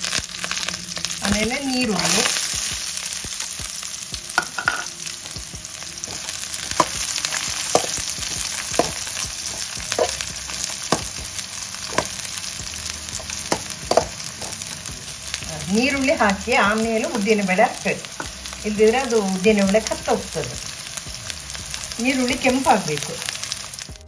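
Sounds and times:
onion sizzling in oil: 0.0s - 24.0s
steel spoon scraping metal pan: 8.7s - 10.3s.

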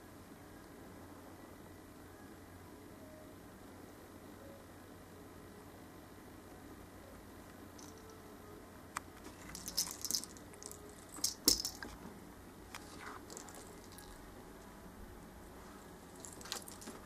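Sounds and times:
cat batting toys on sill: 9.4s - 11.9s.

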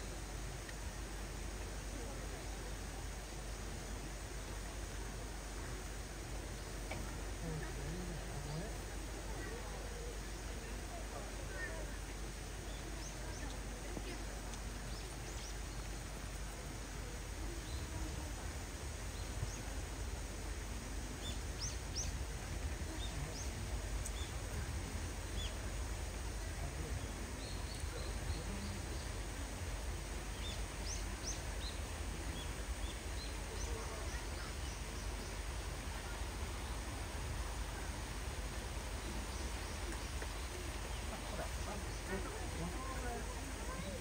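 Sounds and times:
low outdoor rumble: 0.0s - 44.0s
small birds chirping: 26.8s - 29.3s, 30.2s - 36.8s, 38.8s - 44.0s.

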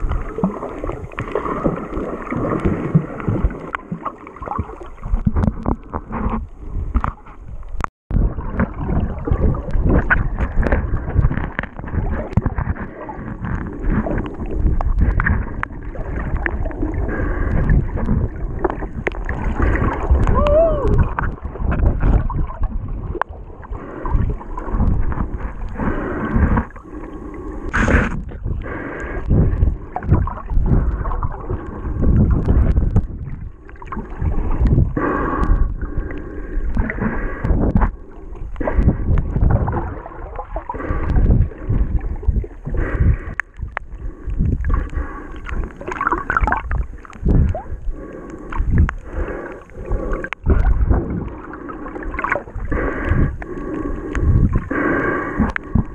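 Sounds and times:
underwater sloshing and gurgling: 0.0s - 55.9s.

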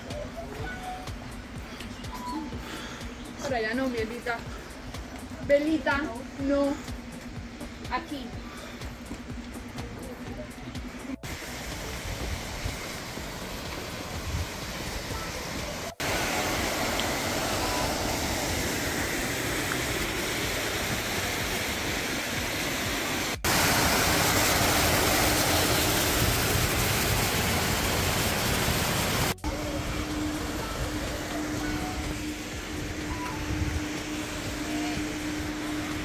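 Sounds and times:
creek water rushing over rocks: 11.2s - 29.4s.

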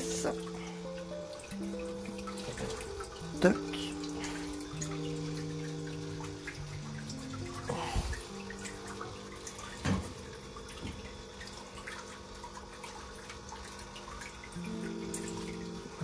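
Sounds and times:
quiet background music: 0.0s - 16.0s.

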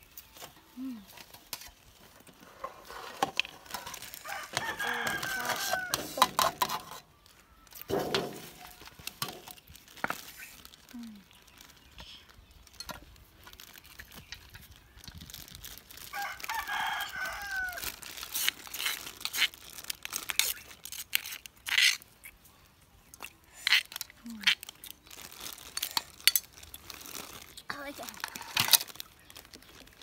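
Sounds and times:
spoons scraping in mortar and bowl: 2.4s - 7.1s
rooster crowing: 4.2s - 6.2s, 16.1s - 17.8s.

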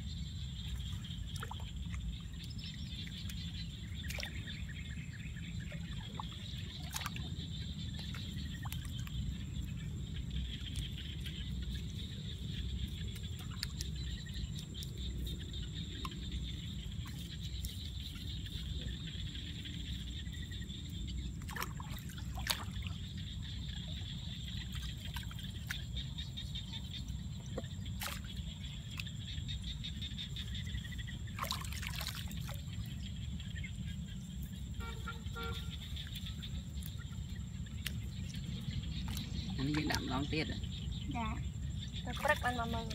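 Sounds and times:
water trickling and splashing: 0.1s - 42.9s
sharp splashes and slaps: 4.0s - 4.5s, 21.4s - 23.0s, 27.6s - 29.1s, 31.3s - 32.6s, 37.8s - 40.3s.

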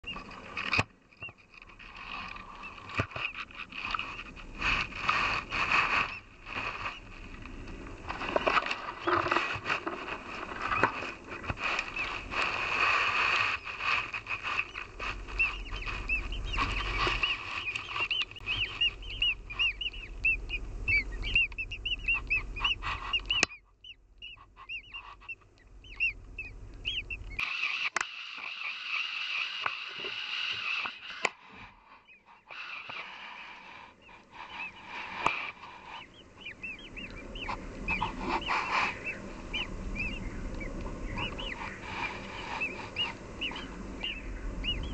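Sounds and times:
knocks and rustles: 0.6s - 18.8s
nestlings cheeping: 8.2s - 44.9s.

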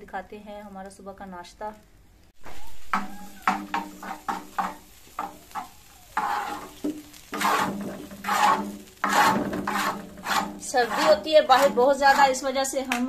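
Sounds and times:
food sizzling on a griddle: 2.4s - 12.8s
spoon scraping a bowl: 3.5s - 4.8s, 6.2s - 12.4s.

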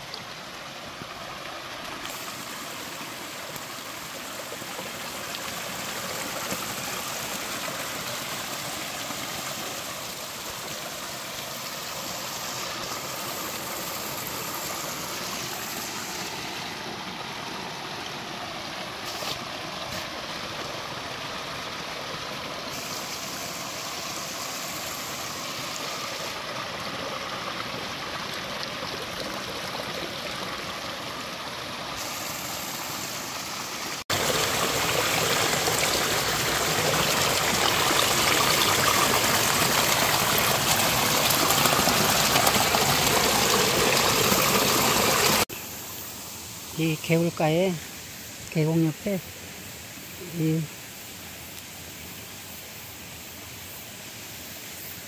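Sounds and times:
stream rushing over rocks: 0.0s - 55.0s.

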